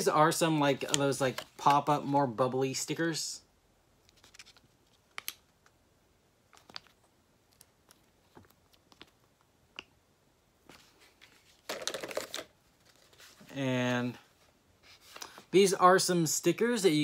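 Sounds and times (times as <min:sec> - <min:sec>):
sticker sheets crinkling: 0:04.1 - 0:05.4.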